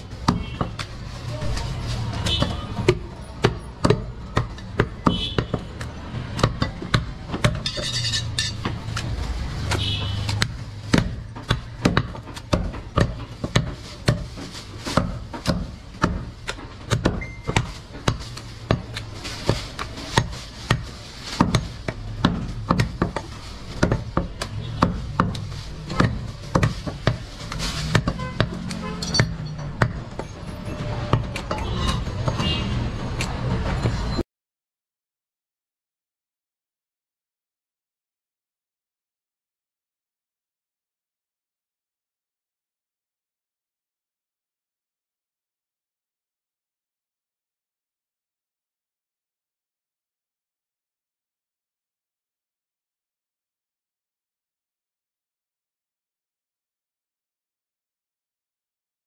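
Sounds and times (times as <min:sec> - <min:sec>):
cleaver chopping meat on wood: 0:08.5 - 0:30.3.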